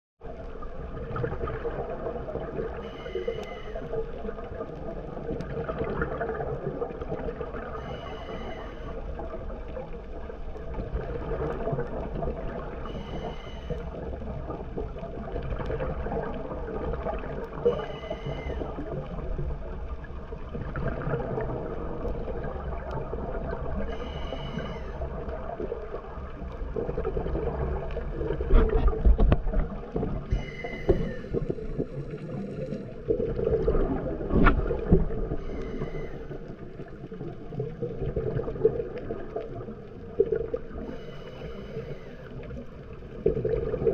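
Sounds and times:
rumble of exhaled bubbles: 0.2 - 43.9
regulator breathing hiss: 2.8 - 4.0, 7.8 - 9.0, 12.8 - 14.0, 17.6 - 18.9, 23.9 - 25.1, 30.3 - 31.6, 35.4 - 36.6, 40.8 - 42.5.

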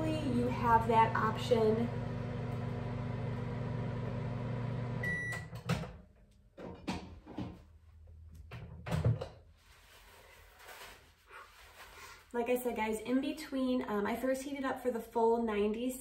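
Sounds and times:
microwave oven humming: 0.0 - 5.6
microwave beep: 2.1 - 5.6.

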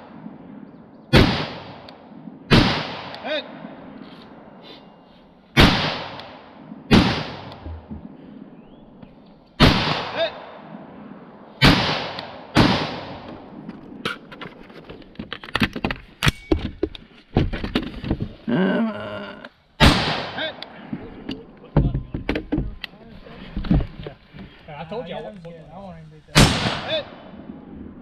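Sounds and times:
rifle shots: 1.1 - 4.0, 5.6 - 7.6, 9.6 - 14.0, 19.8 - 20.6, 26.4 - 27.7.

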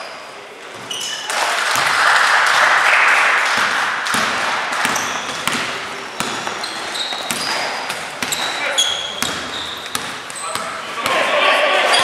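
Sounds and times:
spectators cheering: 1.6 - 4.9, 11.0 - 12.0
basketball bouncing: 1.7 - 2.0, 3.4 - 11.2.

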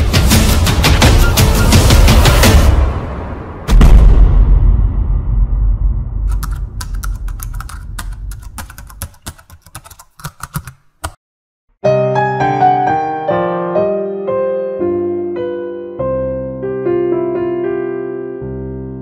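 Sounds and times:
keyboard typing clicks: 6.3 - 11.2
electric piano music: 11.8 - 19.0.

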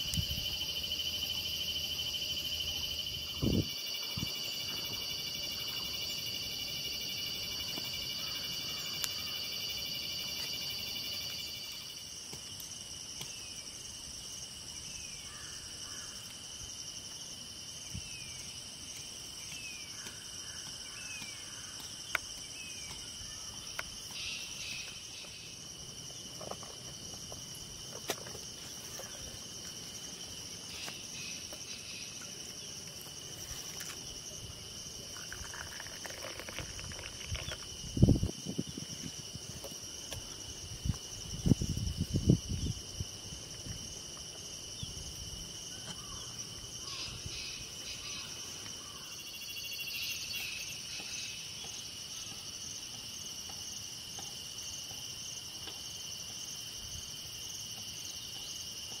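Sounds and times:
crickets chirping: 0.0 - 59.0
tea pouring into a cup: 35.1 - 37.7.

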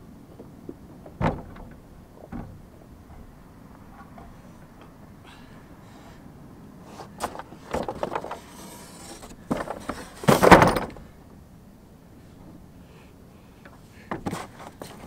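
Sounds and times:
dull thud: 1.2 - 2.6
box scraping slide on wood: 6.9 - 10.5.

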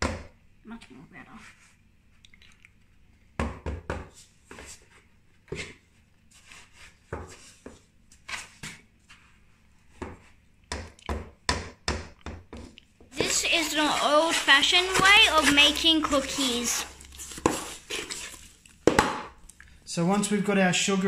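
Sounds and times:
wooden spoon scraping bowl: 13.1 - 18.7.

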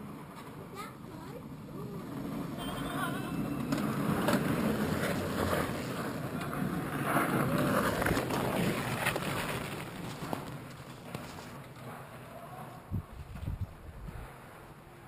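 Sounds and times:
bike rolling past on snow: 1.6 - 15.0
wind on microphone: 12.8 - 14.4.

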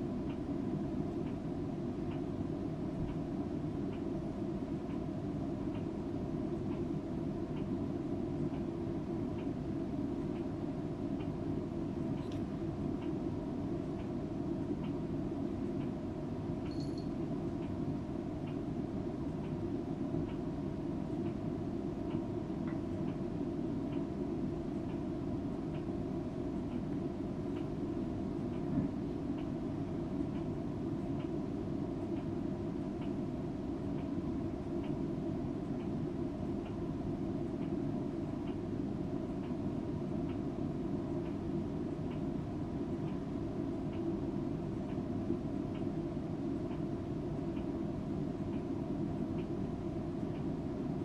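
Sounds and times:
faint tick: 2.1 - 2.3, 43.9 - 44.1, 49.4 - 49.6.

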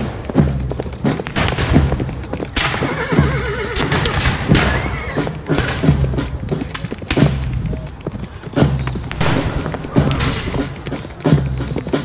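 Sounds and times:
horse whinnying: 2.6 - 5.6.

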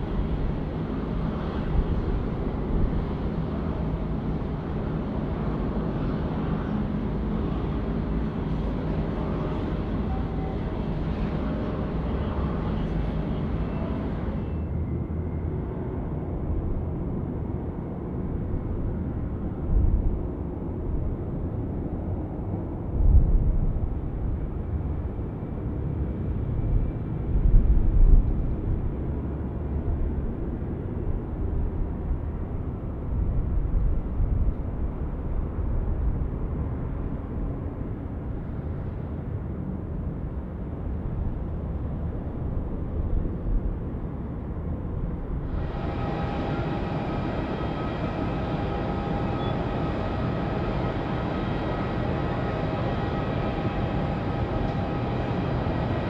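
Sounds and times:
jet engines rumbling: 0.0 - 15.3, 44.0 - 56.0.

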